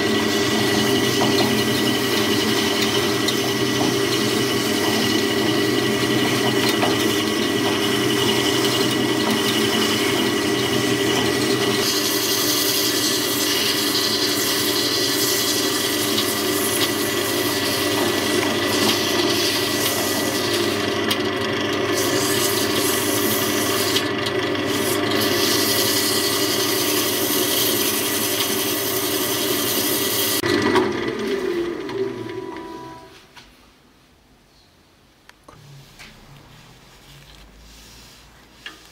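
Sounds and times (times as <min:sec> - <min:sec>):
lathe running hum: 0:00.0 - 0:33.1
sandpaper hissing on wood: 0:11.8 - 0:20.8, 0:22.0 - 0:24.0, 0:24.7 - 0:28.2.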